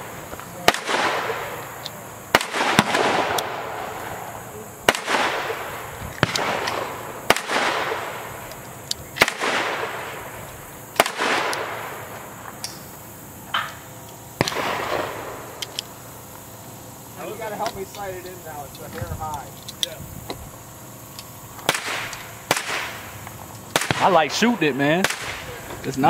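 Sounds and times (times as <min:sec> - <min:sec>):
echoing gunshots: 0:00.0 - 0:12.6, 0:13.8 - 0:16.2, 0:21.6 - 0:25.8.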